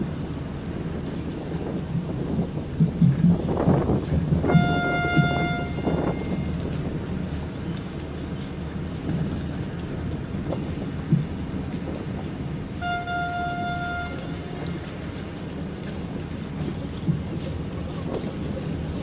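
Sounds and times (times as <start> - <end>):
wind on microphone: 0.0 - 19.0
held tone: 4.5 - 6.5.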